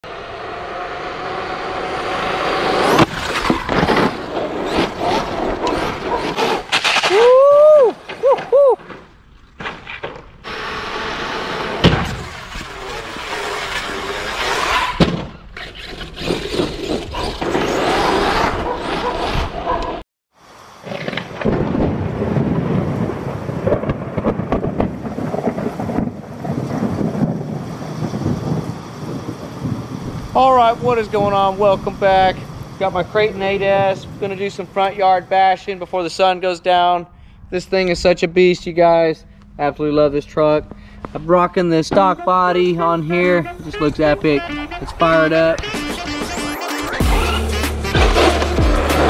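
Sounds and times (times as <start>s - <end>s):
tyres on pavement: 0.0s - 36.4s, 40.3s - 49.0s
electric motor whine: 10.4s - 14.4s
thunder rumble: 20.8s - 36.2s.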